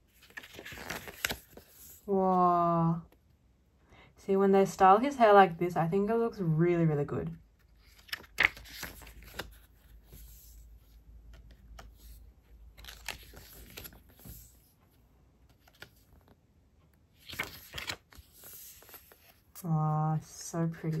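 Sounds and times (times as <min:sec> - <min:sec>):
paper pages rustling: 0:00.0 - 0:02.1, 0:07.6 - 0:14.8, 0:15.4 - 0:16.4, 0:17.2 - 0:19.6, 0:20.4 - 0:21.0.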